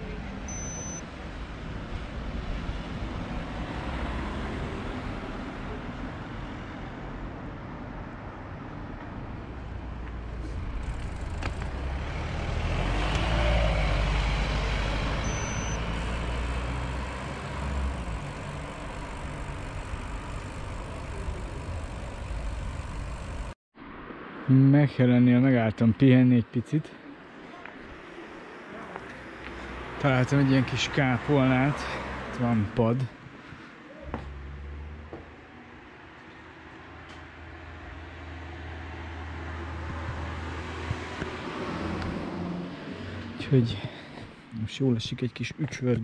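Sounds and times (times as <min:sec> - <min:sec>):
traffic rumble: 0:00.0 - 0:24.5, 0:26.8 - 0:46.0
motor vehicle passing: 0:02.5 - 0:05.7, 0:09.1 - 0:23.6, 0:27.3 - 0:44.5.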